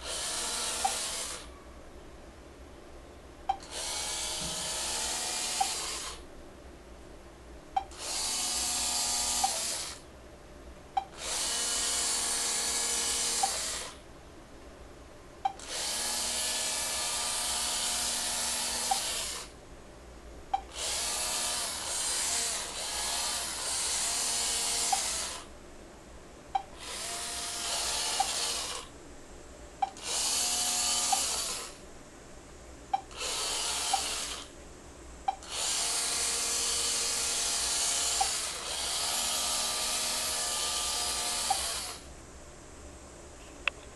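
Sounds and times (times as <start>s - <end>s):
sharp click: 5.6s - 5.8s, 13.4s - 13.6s, 18.9s - 19.1s.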